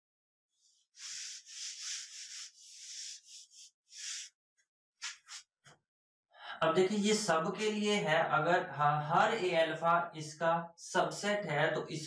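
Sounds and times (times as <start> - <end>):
eraser wiping a whiteboard: 1.0 - 4.3, 5.0 - 5.4.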